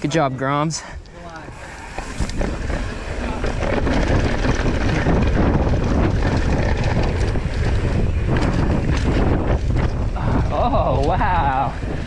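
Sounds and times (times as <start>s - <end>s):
tyre and trail rumble: 0.0s - 12.0s
wind buffeting microphone: 0.9s - 12.0s
bike knocks and rattles: 1.4s - 12.0s.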